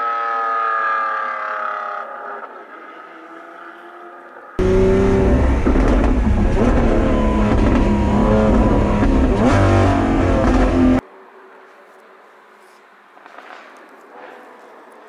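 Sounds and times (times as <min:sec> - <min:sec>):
sports car accelerating hard: 0:00.8 - 0:11.0.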